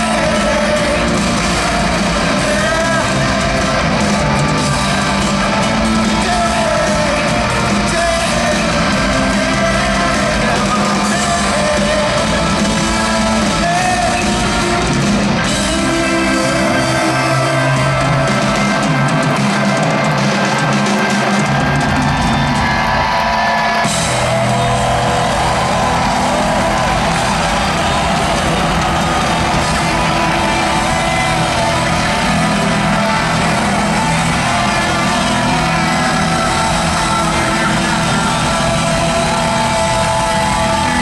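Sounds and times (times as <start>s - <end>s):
man singing into microphone: 0.0s - 18.3s, 29.7s - 41.0s
live rock band playing: 0.0s - 41.0s.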